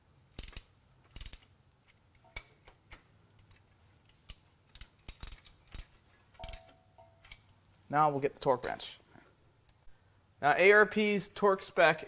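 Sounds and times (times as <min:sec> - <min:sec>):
hand ratchet clicking: 0:00.4 - 0:01.5, 0:04.1 - 0:07.6.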